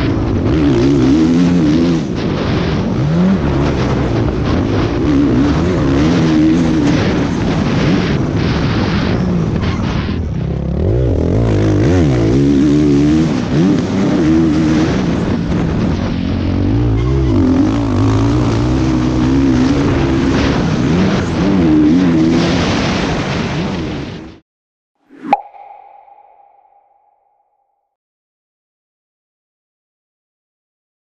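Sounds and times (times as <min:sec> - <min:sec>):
motorbike engine revving: 0:09.6 - 0:22.7.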